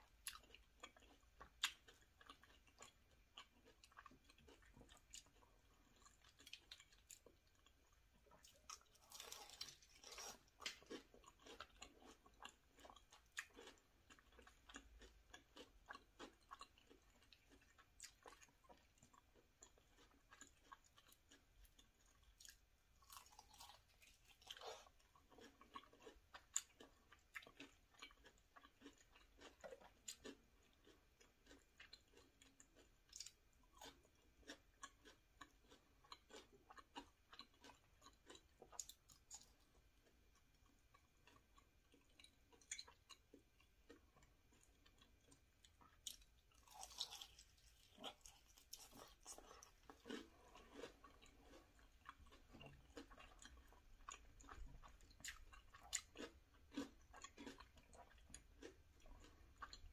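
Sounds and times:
chewing and crunching: 0.0s - 59.9s.

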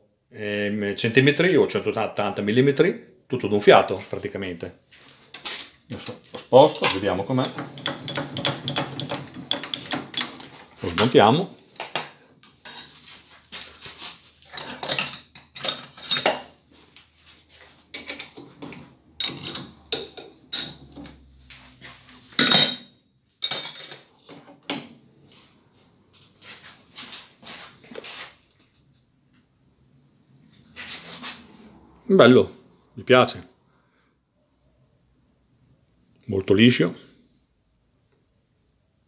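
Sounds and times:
metal tools clinking and clattering: 5.2s - 16.8s, 17.9s - 21.2s, 22.3s - 24.5s.

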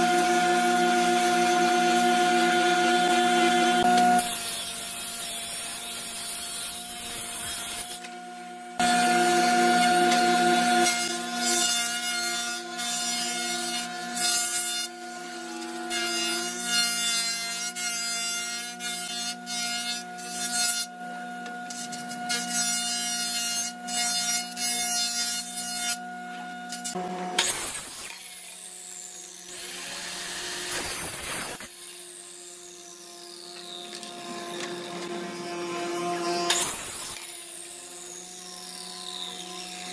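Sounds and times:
electric jointer motor hum: 0.0s - 6.1s, 8.0s - 11.6s, 33.4s - 39.9s
blades shaving wood: 0.0s - 39.9s.

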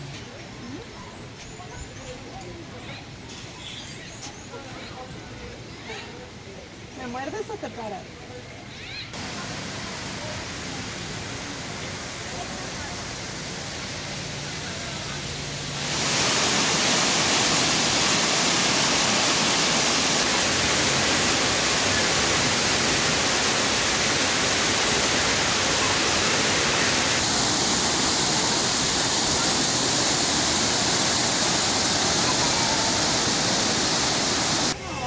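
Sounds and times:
waterfall rushing: 9.2s - 34.8s.

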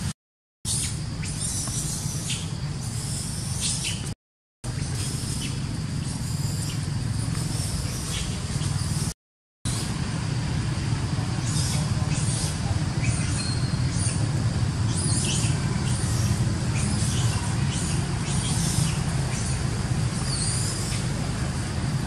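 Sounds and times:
macaques squealing: 11.4s - 21.2s.

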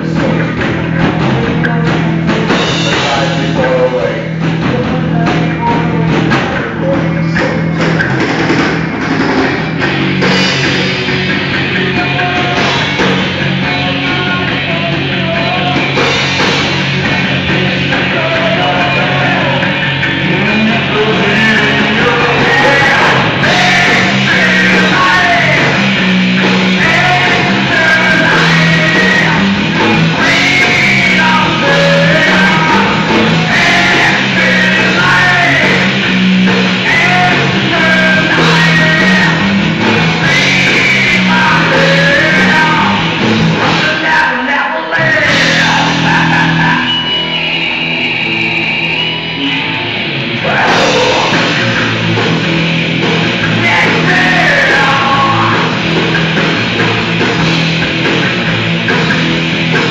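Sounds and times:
thrash metal band playing: 0.0s - 59.9s
high held tone: 6.8s - 44.0s, 45.0s - 59.9s
shouted vocal: 21.0s - 25.8s, 48.2s - 51.8s.

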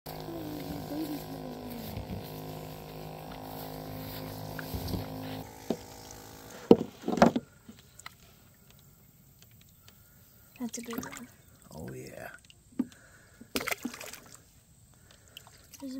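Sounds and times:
steady mechanical drone: 0.1s - 7.4s.

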